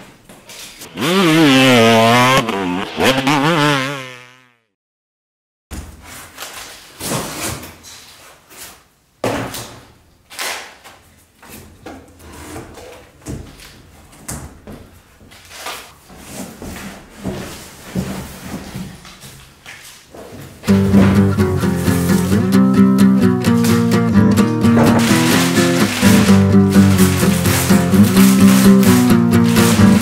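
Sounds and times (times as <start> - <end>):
wooden knocks and scraping: 20.4 - 22.3, 23.5 - 30.0
cardboard carton scraping and rustling: 24.6 - 30.0.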